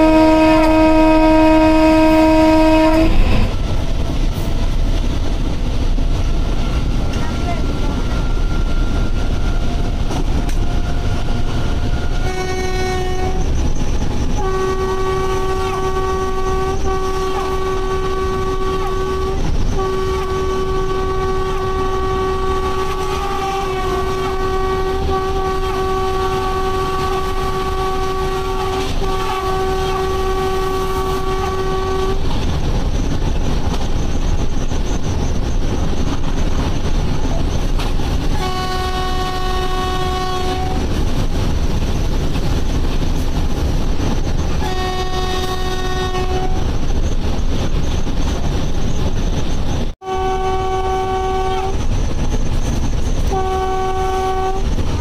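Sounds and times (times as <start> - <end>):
locomotive horn blasts: 0.0 - 3.6, 7.1 - 13.6, 14.3 - 32.5, 38.2 - 41.0, 44.5 - 46.7, 50.0 - 51.9, 53.2 - 55.0
train rumbling at speed: 0.0 - 55.0.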